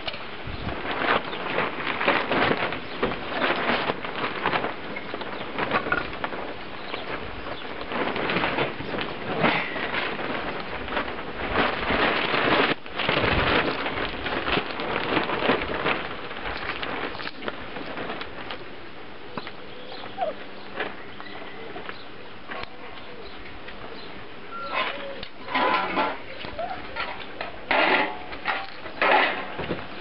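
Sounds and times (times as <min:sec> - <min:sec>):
puppies suckling: 0:20.0 - 0:20.9.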